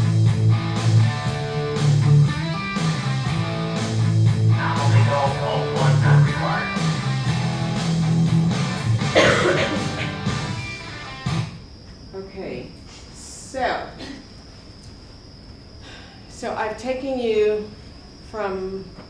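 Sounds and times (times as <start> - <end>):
instrumental music with bass beat: 0.0 - 11.6.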